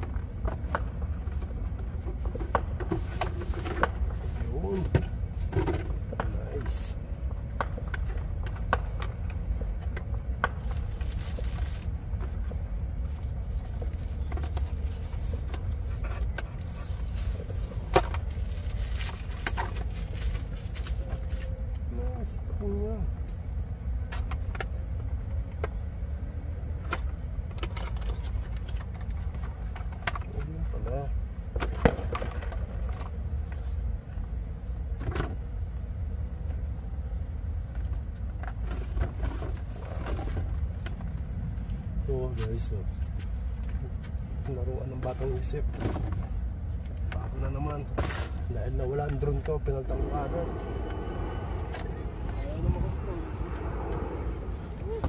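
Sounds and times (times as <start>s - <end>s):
steady low rumble: 0.0s - 55.0s
cardboard and plastic handling: 10.6s - 11.9s, 13.1s - 21.6s
low rumble: 45.6s - 55.0s.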